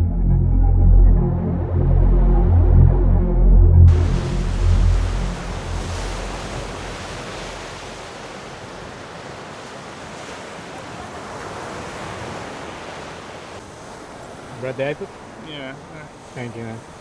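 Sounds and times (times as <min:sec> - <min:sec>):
music track low end: 0:00.0 - 0:07.9
ocean surf: 0:03.9 - 0:17.0.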